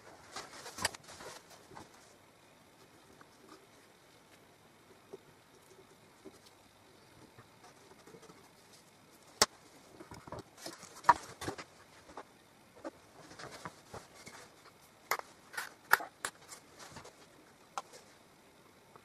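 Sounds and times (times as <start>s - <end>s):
soft rustling: 0.0s - 14.9s.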